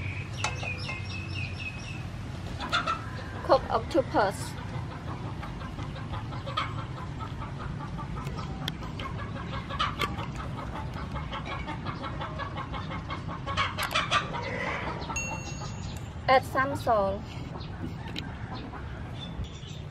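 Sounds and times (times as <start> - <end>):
chickens clucking: 0.0 - 19.5.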